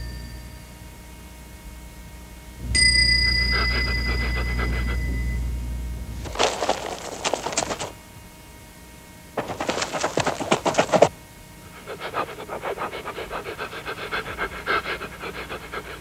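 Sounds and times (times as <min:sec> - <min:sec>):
chime: 0:00.0 - 0:00.8, 0:02.7 - 0:05.4
dog scratching in dirt: 0:06.2 - 0:08.0, 0:09.4 - 0:11.1, 0:11.7 - 0:16.0.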